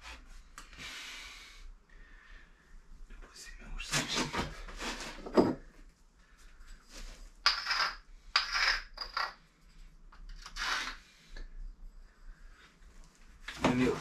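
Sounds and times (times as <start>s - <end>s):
scratching on concrete stone: 7.4s - 9.4s, 10.2s - 11.0s.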